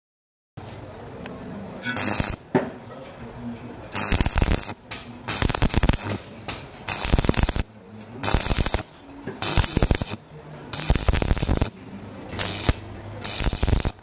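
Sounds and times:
welding arc crackling: 0:01.9 - 0:02.4, 0:03.9 - 0:14.0.

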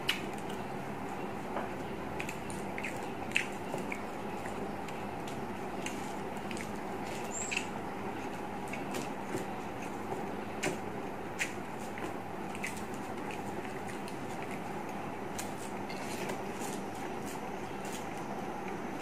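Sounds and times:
chewing clicks: 0:00.0 - 0:00.6, 0:02.2 - 0:04.6
steady background hum: 0:00.0 - 0:19.0.

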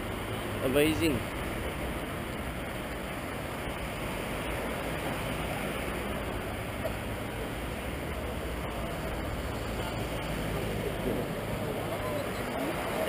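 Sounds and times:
road traffic: 0:00.0 - 0:13.0.

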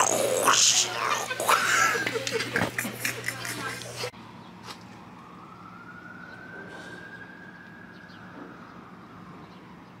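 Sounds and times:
distant siren wailing: 0:04.2 - 0:10.0.

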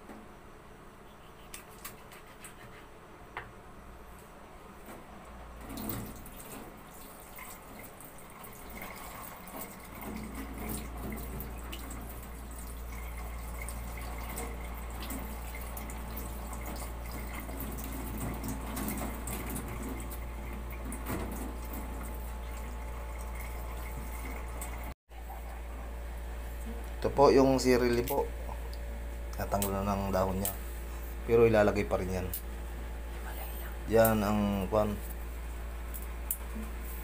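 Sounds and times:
small clicks and drips: 0:05.6 - 0:24.9.

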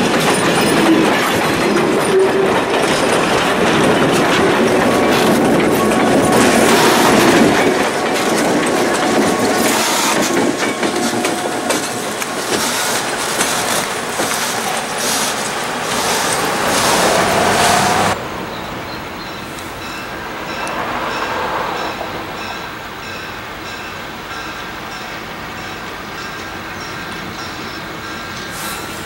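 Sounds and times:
wheels clicking over rail joints: 0:00.0 - 0:18.2
diesel locomotive rumble: 0:00.0 - 0:29.0
distant train: 0:00.0 - 0:29.0.

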